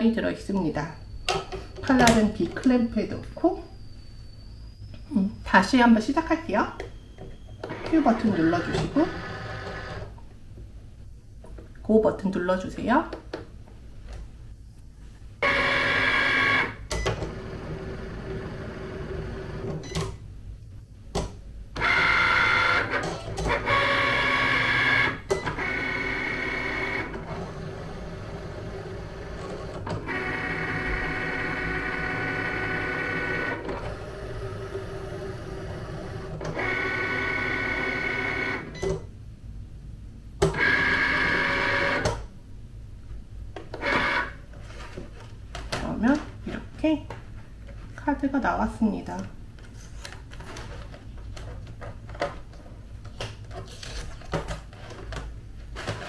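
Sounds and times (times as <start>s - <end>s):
cutting machine motors whining: 7.6s - 10.1s, 15.4s - 19.8s, 21.8s - 38.8s.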